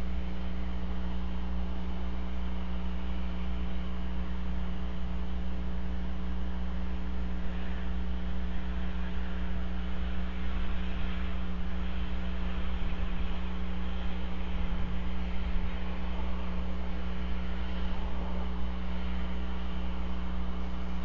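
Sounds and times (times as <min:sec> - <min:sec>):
electrical mains hum: 0:00.0 - 0:21.0.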